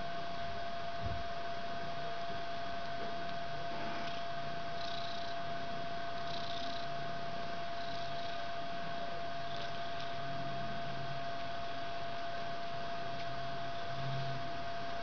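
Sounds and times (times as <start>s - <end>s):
steady hum: 0.0s - 15.0s
cat purring: 3.0s - 11.0s.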